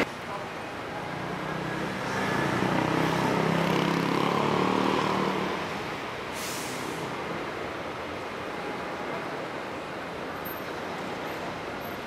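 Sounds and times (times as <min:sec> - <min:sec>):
vehicle driving past: 0:01.4 - 0:05.8
short hiss: 0:06.3 - 0:07.1.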